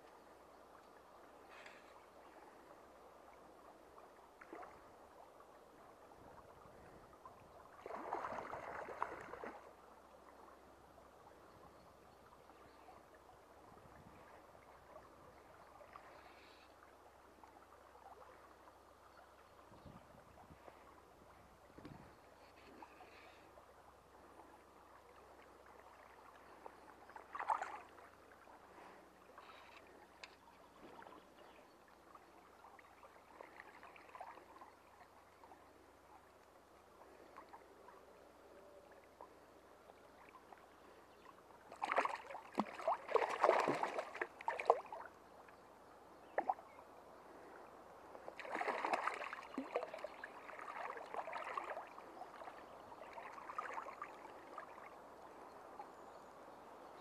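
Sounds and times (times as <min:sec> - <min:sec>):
faint stream flowing: 0:00.0 - 0:57.0
fish splashing in water: 0:41.8 - 0:45.0, 0:48.4 - 0:51.8.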